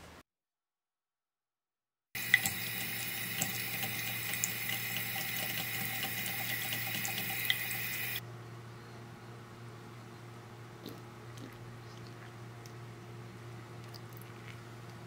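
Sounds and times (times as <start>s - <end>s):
tap running water into drain: 2.2s - 8.2s.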